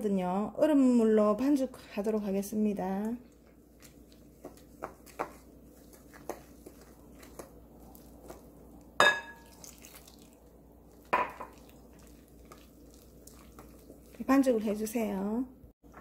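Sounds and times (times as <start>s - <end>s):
spoon stirring batter: 2.8s - 15.2s
spoon knocking glass bowl: 9.0s - 9.5s.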